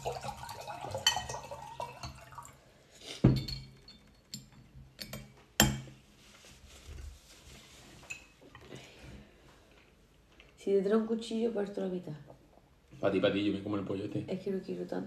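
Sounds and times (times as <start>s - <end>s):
tableware knocking: 3.2s - 6.0s.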